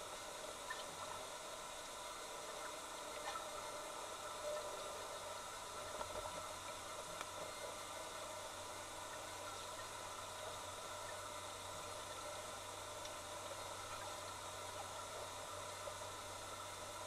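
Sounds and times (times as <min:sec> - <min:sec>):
faint clicks: 0:05.9 - 0:07.8, 0:13.0 - 0:14.3.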